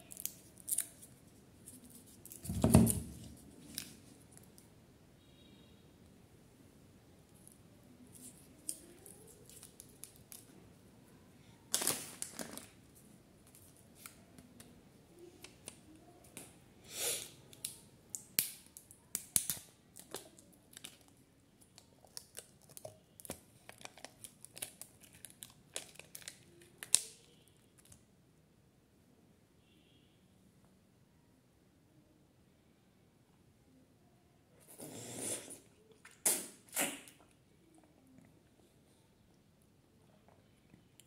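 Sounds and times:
plastic cup crackling: 0:11.7 - 0:12.8, 0:21.8 - 0:27.2
plastic film peeling: 0:21.8 - 0:27.9.

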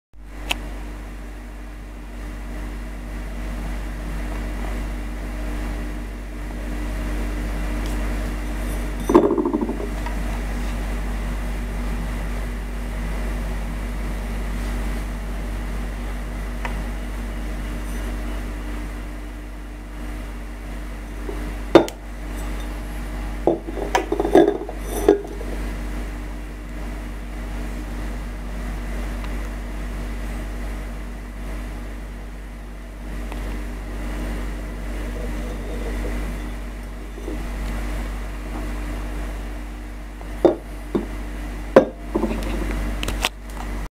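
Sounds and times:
steady hum: 0:00.2 - 0:43.9
sharp ceramic clinks: 0:08.5 - 0:09.8, 0:21.8 - 0:22.8, 0:23.6 - 0:25.4
ceramic dish knocking on wooden table: 0:09.0 - 0:10.0, 0:23.5 - 0:25.4, 0:40.4 - 0:41.1, 0:41.8 - 0:42.6.

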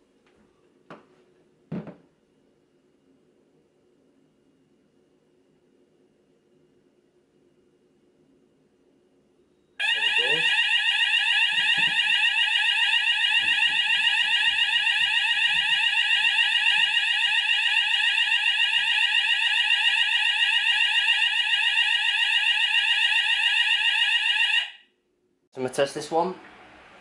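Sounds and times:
fast sweeping fire alarm tone: 0:09.8 - 0:24.9.

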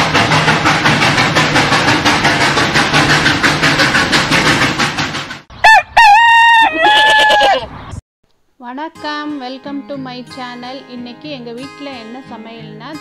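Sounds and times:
steam train chugging: 0:00.0 - 0:05.5
cartoon rooster crow: 0:05.6 - 0:07.7.

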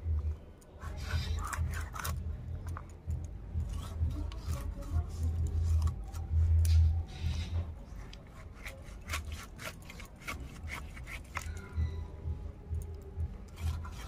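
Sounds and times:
blade cutting fish: 0:00.8 - 0:02.2, 0:08.1 - 0:11.6, 0:13.5 - 0:14.0.

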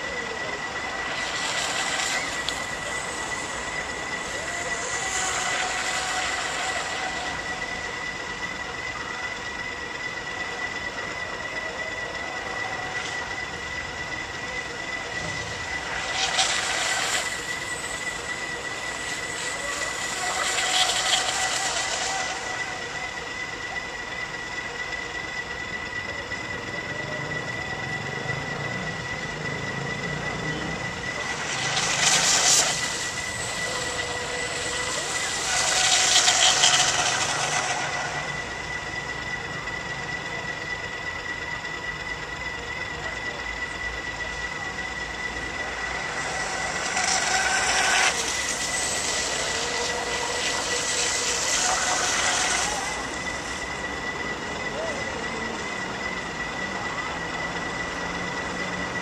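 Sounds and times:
rushing hiss: 0:00.0 - 0:07.5, 0:15.0 - 0:23.0, 0:31.2 - 0:39.1, 0:45.5 - 0:53.9
boat motor whining: 0:00.0 - 0:59.0.

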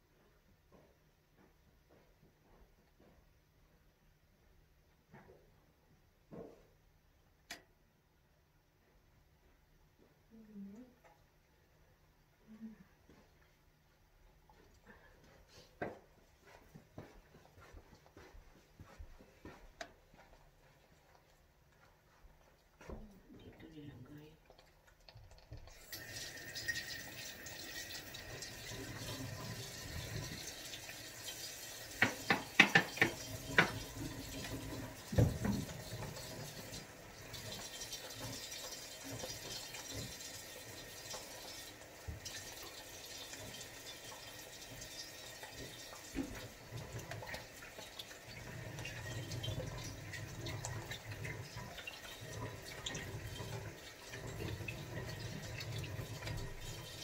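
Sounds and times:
tap water running into sink: 0:24.4 - 0:57.0.

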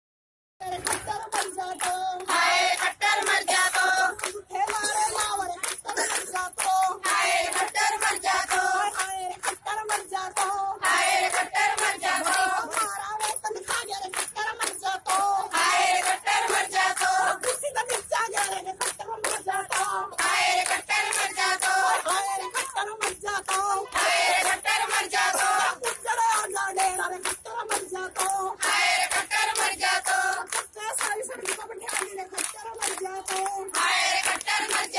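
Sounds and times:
hand-clapping: 0:00.6 - 0:34.9
women singing into a microphone: 0:00.6 - 0:34.9.

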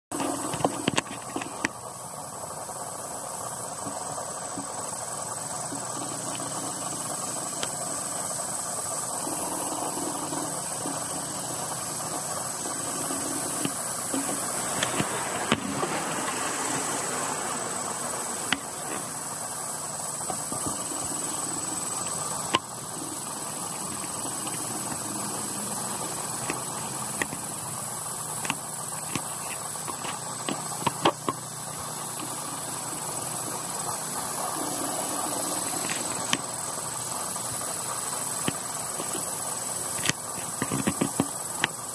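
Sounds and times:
high steady whine: 0:00.0 - 0:41.9
machine hum and hiss: 0:00.0 - 0:41.9
sharp clicks: 0:20.2 - 0:32.5.

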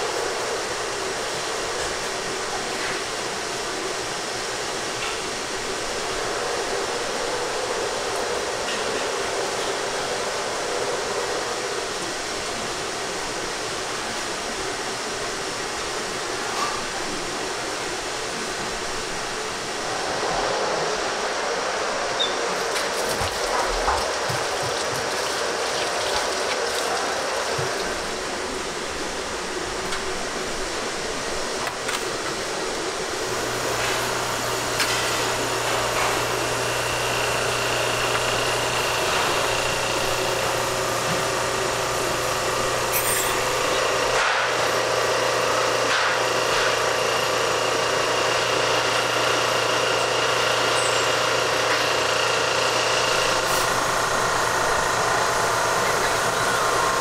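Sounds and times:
rushing kitchen background noise: 0:00.0 - 0:57.0
duck rinsed in steel sink: 0:22.7 - 0:28.3.

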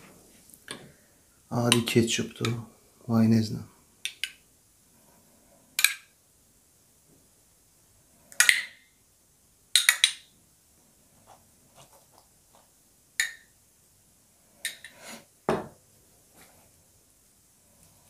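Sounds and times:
cup set down knock: 0:15.5 - 0:15.8.

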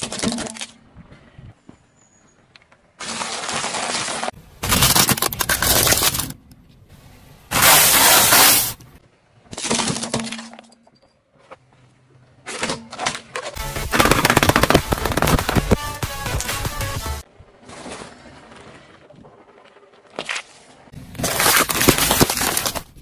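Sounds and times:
tyre crushing brittle objects: 0:03.0 - 0:06.4, 0:12.5 - 0:15.7, 0:20.1 - 0:23.0.

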